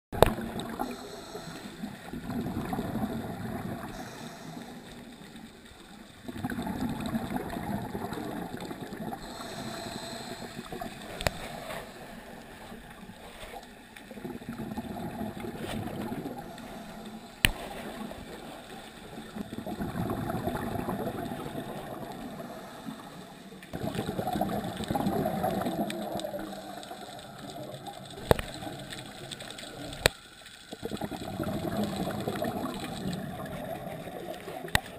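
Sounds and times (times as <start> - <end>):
gurgling exhaled bubbles: 0.2 - 13.3, 14.0 - 34.9
underwater regulator breathing: 0.6 - 5.7, 8.2 - 13.8, 14.8 - 18.9, 21.6 - 23.8.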